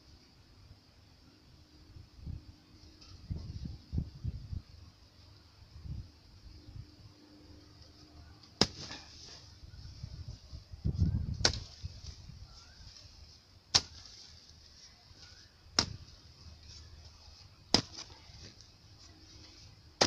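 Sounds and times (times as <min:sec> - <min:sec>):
hoe striking hard ground: 0:08.6 - 0:09.2, 0:13.7 - 0:14.2, 0:15.8 - 0:16.2, 0:17.7 - 0:18.2.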